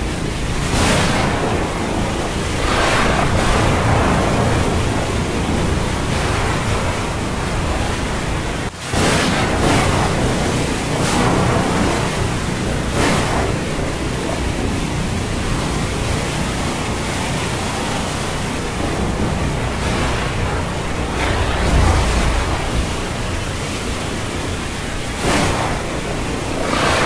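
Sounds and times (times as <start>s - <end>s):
rushing storm at sea: 0.0s - 27.0s
low rumble: 9.4s - 27.0s.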